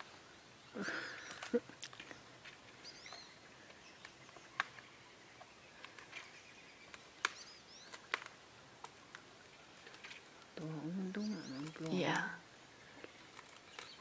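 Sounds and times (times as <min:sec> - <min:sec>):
small birds chirping: 0:00.0 - 0:14.0
sharp clicks: 0:06.9 - 0:09.2.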